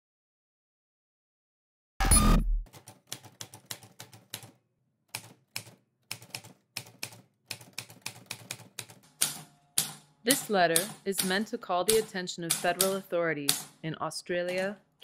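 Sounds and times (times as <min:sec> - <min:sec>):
typewriter keys striking: 0:05.2 - 0:13.7, 0:14.5 - 0:14.7.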